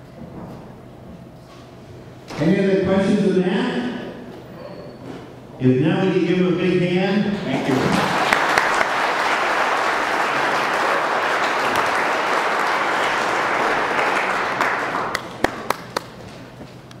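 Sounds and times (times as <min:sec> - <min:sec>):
audience applauding: 0:07.5 - 0:16.2.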